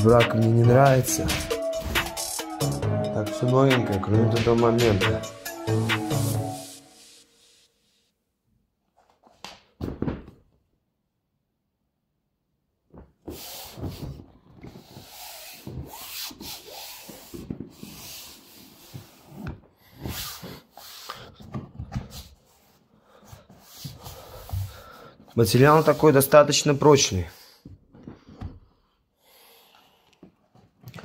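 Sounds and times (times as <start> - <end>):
hands rubbing inflatable tube: 13.2 - 26.6.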